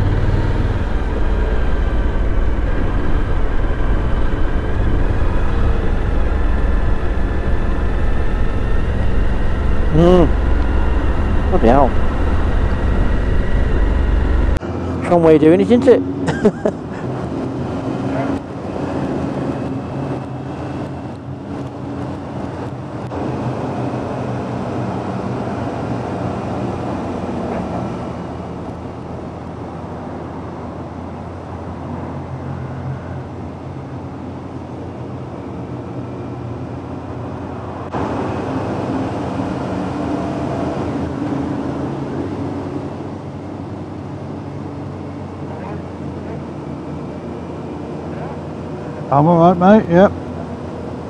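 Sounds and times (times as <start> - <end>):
motorcycle engine running: 0.0 - 14.6
wind and road noise: 0.0 - 51.0.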